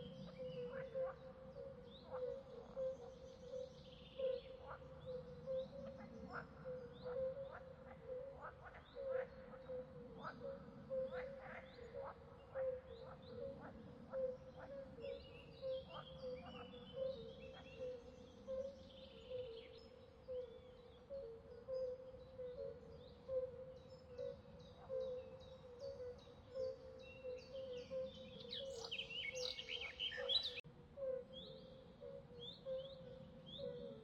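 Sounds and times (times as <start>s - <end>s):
frogs trilling chorus: 0.0s - 34.0s
small birds chirping: 24.2s - 30.6s.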